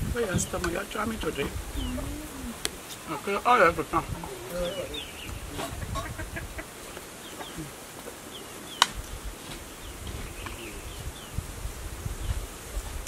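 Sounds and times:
insect buzzing: 0.0s - 13.0s
faint bird chirps: 1.7s - 2.6s, 4.3s - 8.9s, 9.7s - 11.4s.

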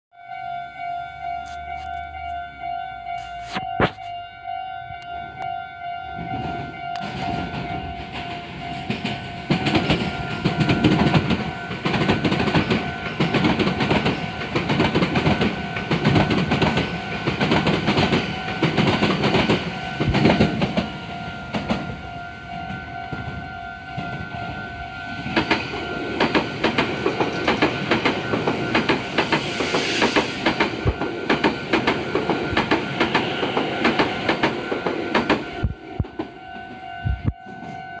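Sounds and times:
level crossing alarm ringing: 0.1s - 29.6s, 30.5s - 38.0s
train wheels clattering: 6.2s - 24.2s, 25.2s - 37.8s.

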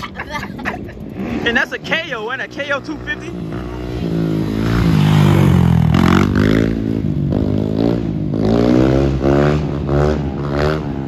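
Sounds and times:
dirt bike engine revving: 1.1s - 11.0s.

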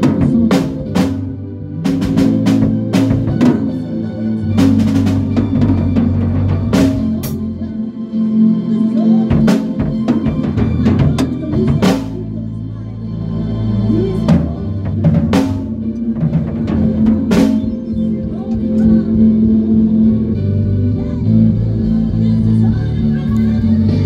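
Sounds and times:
drum kit played with sticks: 0.0s - 7.8s, 9.0s - 12.5s, 13.9s - 24.0s
band low sustained notes: 0.0s - 24.0s.

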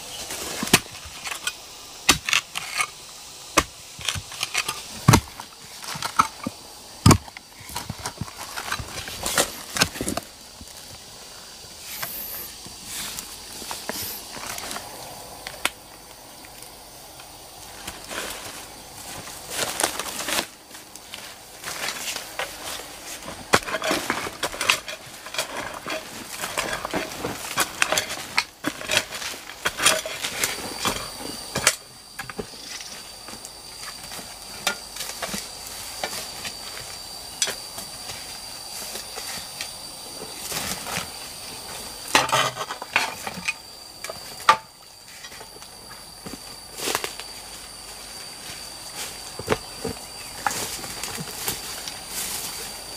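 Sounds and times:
steady high thin whine: 0.0s - 52.9s
hoe chopping into soil: 0.4s - 1.4s, 2.0s - 2.9s, 3.5s - 10.2s.

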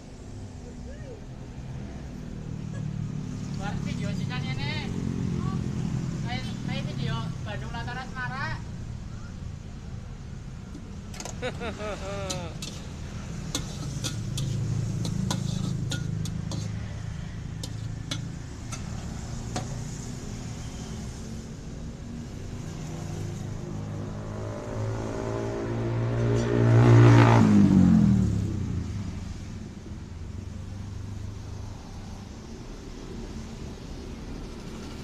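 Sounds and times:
motor vehicle passing: 0.9s - 8.0s, 11.4s - 21.2s, 22.3s - 29.6s.

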